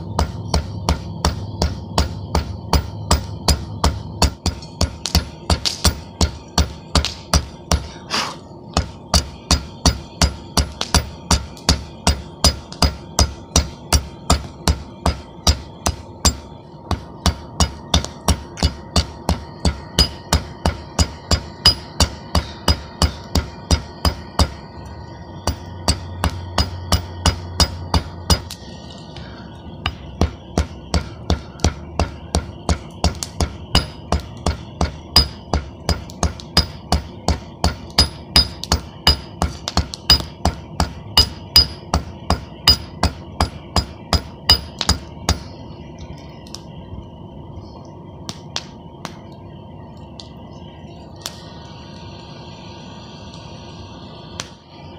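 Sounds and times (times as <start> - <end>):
hammer ringing on hot steel: 0.0 - 8.0, 8.8 - 28.6, 29.8 - 45.5.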